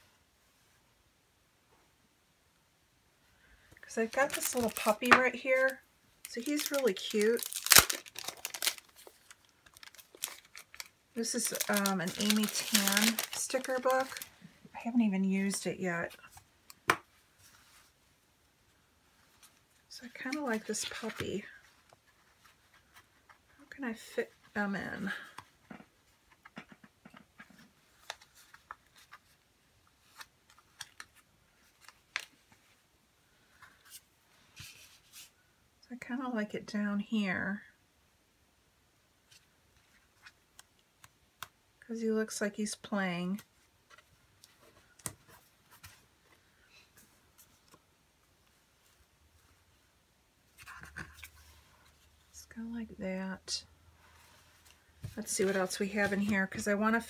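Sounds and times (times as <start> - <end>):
paper sticker sheet crinkling: 4.0 - 14.3.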